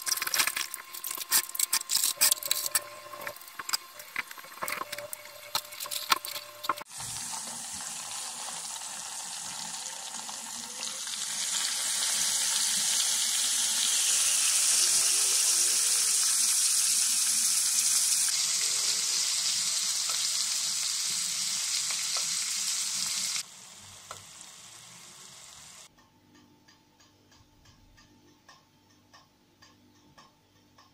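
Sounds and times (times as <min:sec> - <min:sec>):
vegetables sizzling in a pan: 0:00.0 - 0:25.9
faint regular ticking: 0:25.9 - 0:30.9.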